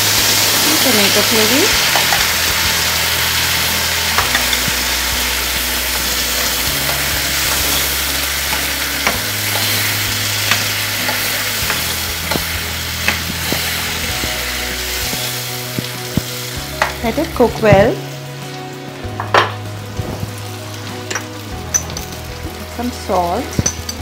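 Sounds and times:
paste sizzling in hot oil: 0:00.0 - 0:24.0.

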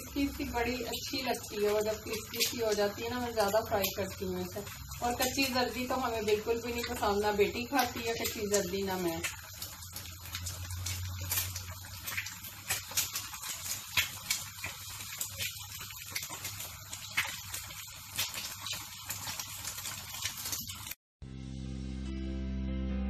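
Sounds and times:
eggs sizzling in a pan: 0:00.0 - 0:21.0
guitar music: 0:21.2 - 0:23.0.

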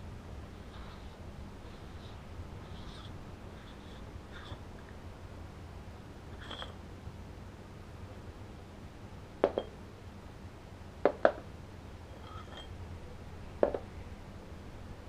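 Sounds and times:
flashlight parts knocking and clinking: 0:09.4 - 0:09.7.

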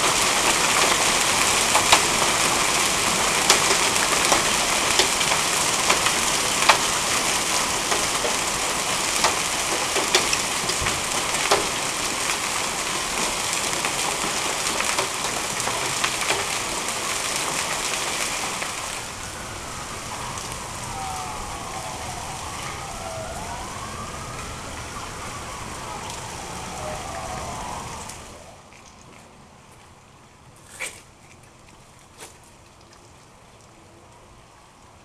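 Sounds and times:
hail and rain pelting pavement: 0:00.0 - 0:28.6
hailstones clicking: 0:00.0 - 0:29.2
faint siren rising and falling: 0:17.8 - 0:28.7.

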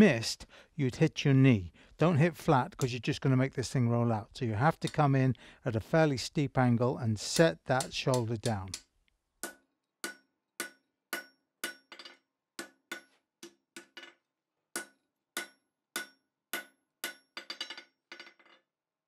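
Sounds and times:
hammer striking steel on anvil: 0:07.8 - 0:18.0.

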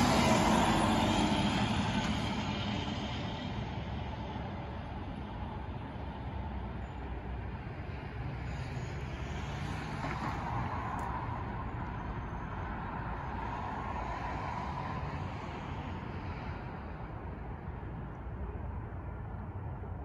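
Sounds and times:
vehicle passing: 0:00.0 - 0:03.7
distant traffic rumble: 0:00.0 - 0:20.0.

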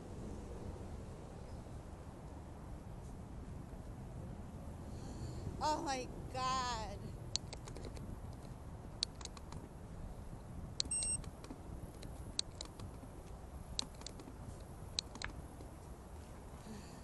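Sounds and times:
rumble of wind and tyres: 0:00.0 - 0:17.0
bike clicks and rattles: 0:10.8 - 0:13.1, 0:13.8 - 0:14.4, 0:15.0 - 0:15.7
short high beep: 0:10.9 - 0:11.2.

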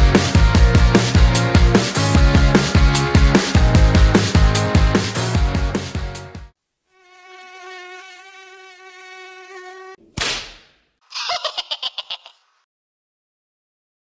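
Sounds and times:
mosquito buzzing: 0:06.9 - 0:10.0.

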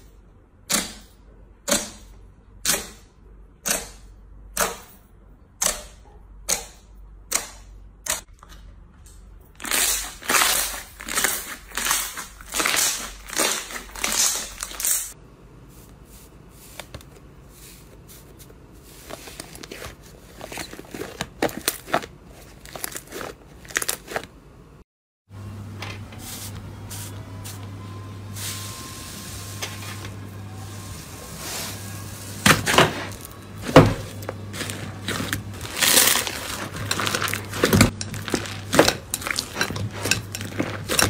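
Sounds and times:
slime crackling and squelching: 0:09.6 - 0:15.2, 0:16.6 - 0:24.4, 0:33.0 - 0:41.0.

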